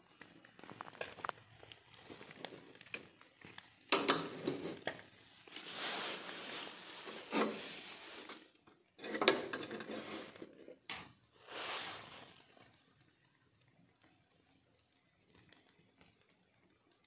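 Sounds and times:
wire grill baskets rattling and scraping: 5.7 - 10.8.

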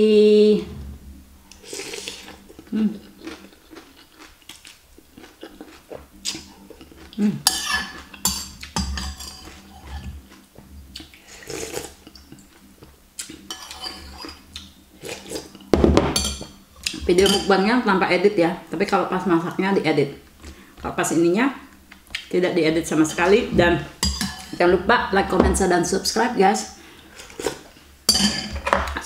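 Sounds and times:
slurping soup: 1.5 - 2.7, 9.3 - 12.6.

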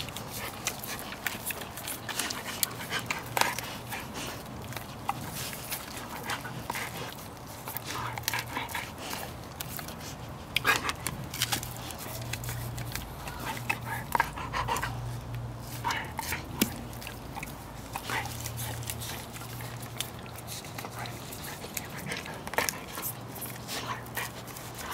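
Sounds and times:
dog licking a plastic brush: 0.0 - 24.9.

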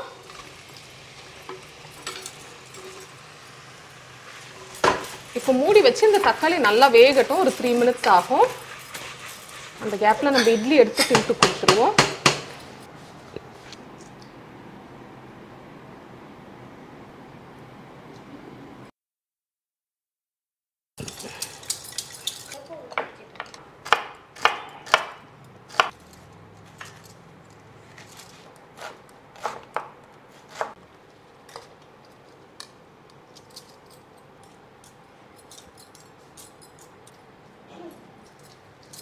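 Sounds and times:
knife chopping on wooden board: 23.8 - 25.9, 28.8 - 30.8.

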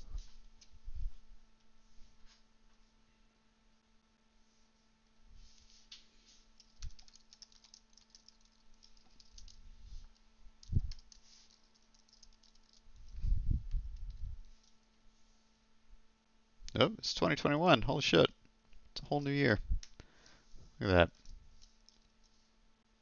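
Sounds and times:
faint electrical hum: 0.0 - 23.0
keyboard typing: 6.6 - 14.9.

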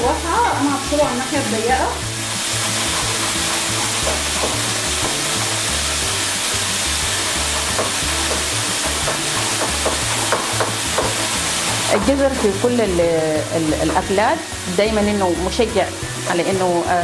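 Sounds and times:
meat sizzling in a pan: 0.0 - 17.0
music with low beat: 3.0 - 6.2, 7.0 - 14.3.

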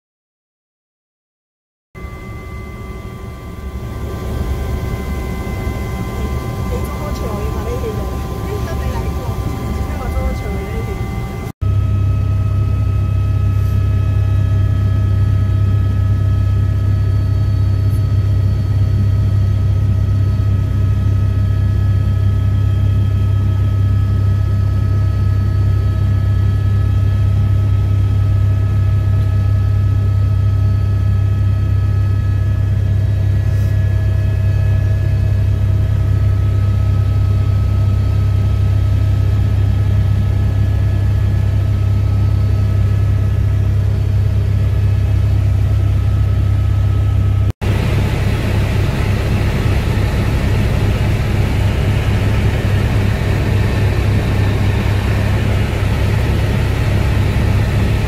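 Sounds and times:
helicopter whining tones: 2.0 - 24.1, 30.6 - 58.0
helicopter low drone: 2.0 - 58.0.

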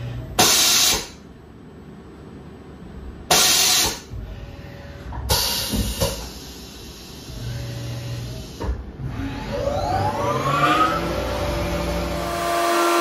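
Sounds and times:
machine low hum: 0.0 - 13.0
compressed air blast: 0.4 - 1.2, 3.3 - 4.1, 5.3 - 7.4.

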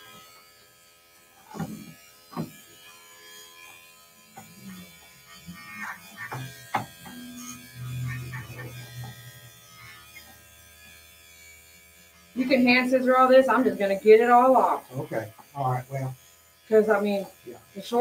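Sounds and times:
electric clippers running: 0.0 - 18.0
deep low hum: 7.2 - 10.0.

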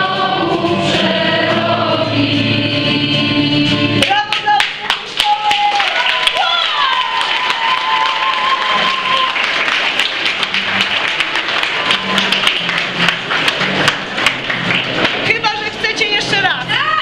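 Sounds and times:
crowd applauding: 4.0 - 16.1.

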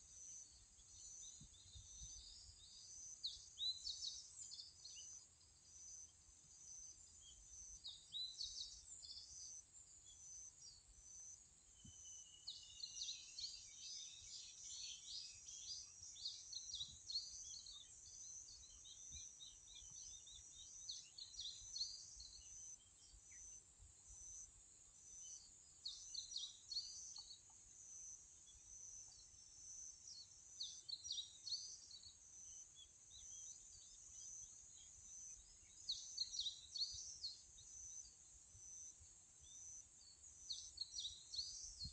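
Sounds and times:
small birds chirping: 0.0 - 41.9.

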